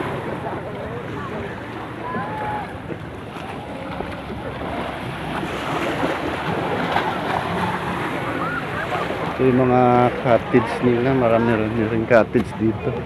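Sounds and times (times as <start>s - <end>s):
sea surf washing: 0.0s - 13.0s.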